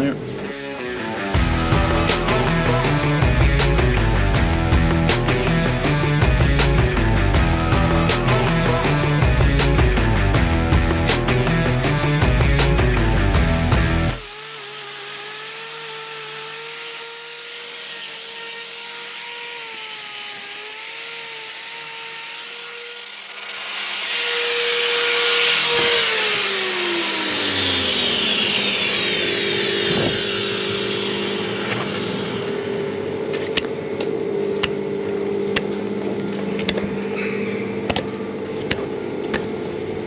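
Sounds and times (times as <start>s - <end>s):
background music: 0.0s - 14.2s
angle grinder whining: 0.0s - 40.0s
grinder disc rasping on hoof: 31.5s - 39.6s.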